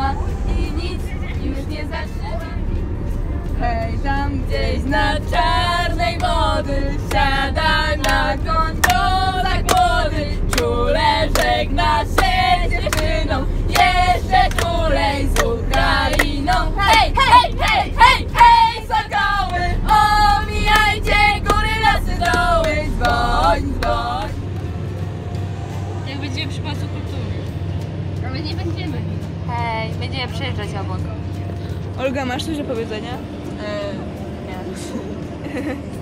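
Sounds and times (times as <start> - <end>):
bus engine and road rumble: 0.0 - 36.0
girls singing together: 3.6 - 24.4.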